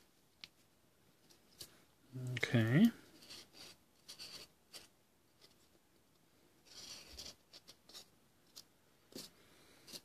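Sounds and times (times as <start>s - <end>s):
marker pen scratching on foam: 3.2s - 4.9s, 6.6s - 8.1s.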